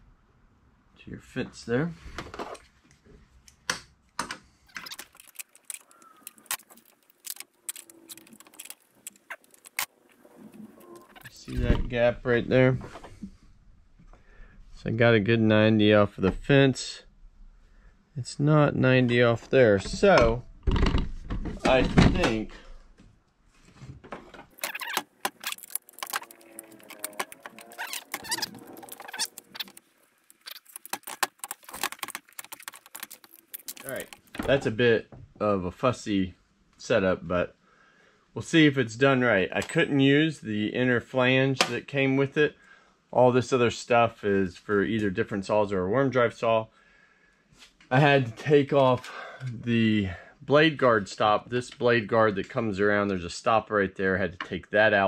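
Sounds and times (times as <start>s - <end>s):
metal parts clicking and rattling: 4.7s - 9.9s, 24.5s - 34.4s.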